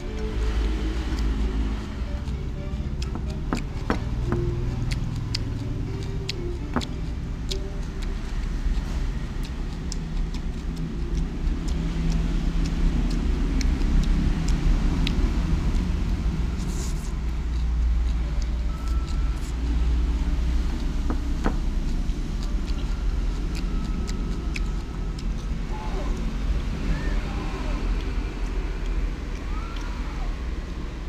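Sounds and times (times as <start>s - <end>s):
low rumble: 0.0s - 31.0s
chopsticks clicking on ceramic plate: 2.1s - 9.0s.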